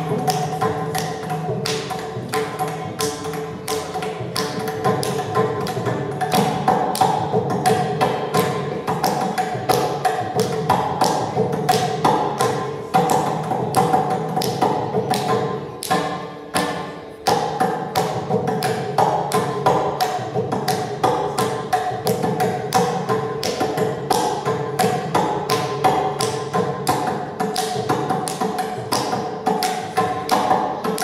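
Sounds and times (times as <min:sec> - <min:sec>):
mridangam drum strokes: 0:00.0 - 0:31.0.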